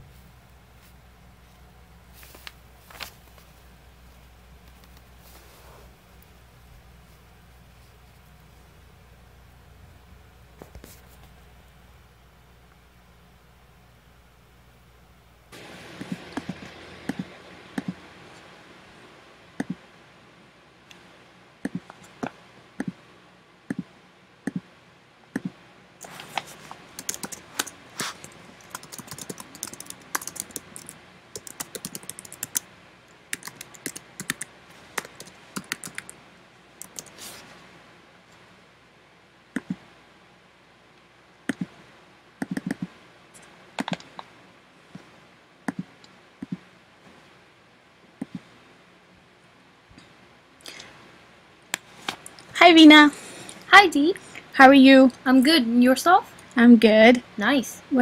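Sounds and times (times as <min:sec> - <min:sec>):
typing on laptop keyboard: 0:26.8 - 0:32.7, 0:33.3 - 0:36.2, 0:36.8 - 0:37.2, 0:42.4 - 0:42.9, 0:43.8 - 0:44.2.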